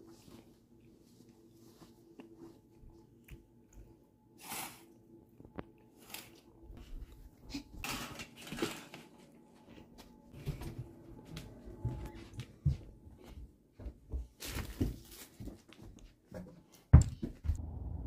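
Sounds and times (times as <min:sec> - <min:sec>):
rustling on carpet: 0:00.0 - 0:03.0.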